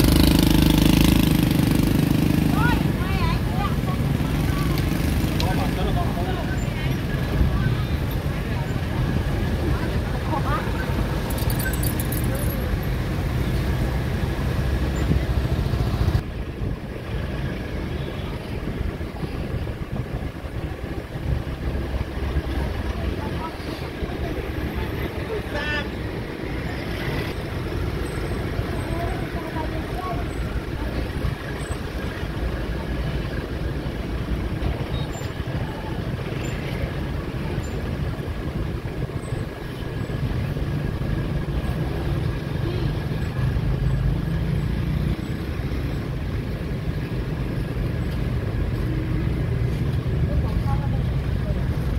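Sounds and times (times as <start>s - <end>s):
motorbike engines rumbling: 0.0s - 51.9s
street market hubbub: 0.0s - 51.9s
faint voices: 2.4s - 13.1s, 17.7s - 43.6s.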